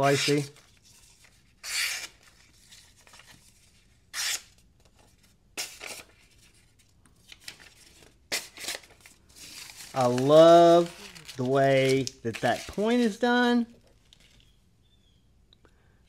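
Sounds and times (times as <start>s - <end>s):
knife slicing paper: 1.6s - 2.2s, 4.1s - 4.5s.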